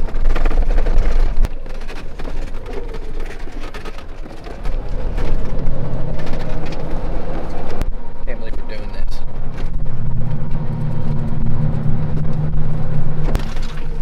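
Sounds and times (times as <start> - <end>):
small knocks and rattles: 0.0 - 7.8
car engine and tyre rumble: 0.0 - 14.0.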